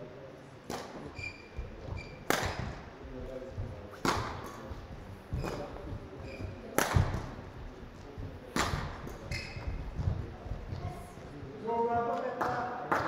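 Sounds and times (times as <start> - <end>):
rackets hitting shuttlecock: 0.7 - 1.3, 1.9 - 2.8, 3.9 - 4.7, 6.4 - 7.4, 8.5 - 10.1.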